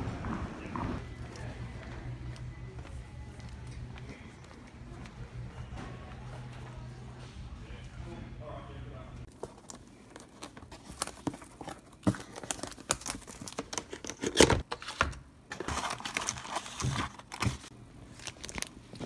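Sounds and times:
plastic bags rustling: 0:09.3 - 0:14.7, 0:15.6 - 0:19.0
plastic packaging crinkling and tearing: 0:09.3 - 0:14.7, 0:15.6 - 0:19.0.

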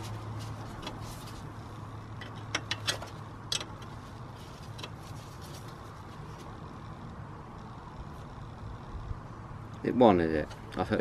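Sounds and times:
steady low hum: 0:00.0 - 0:11.0
spanner metallic clicks: 0:02.2 - 0:04.0.

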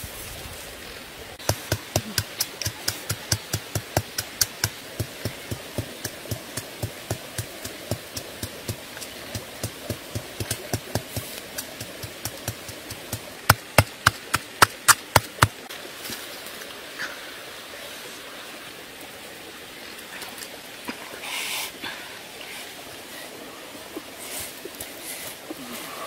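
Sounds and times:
machete chopping into ground: 0:13.5 - 0:15.6.

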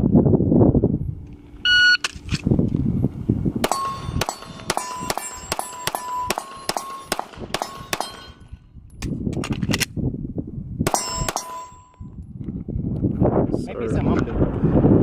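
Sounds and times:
pistol shots: 0:03.6 - 0:08.5, 0:10.9 - 0:11.8
steel target ringing clang: 0:03.6 - 0:08.6, 0:10.9 - 0:12.1.

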